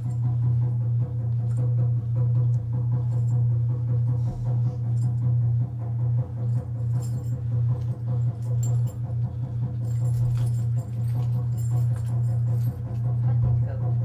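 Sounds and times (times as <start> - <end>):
low drone: 0.0 - 14.0
jingling and rustling: 6.4 - 13.4.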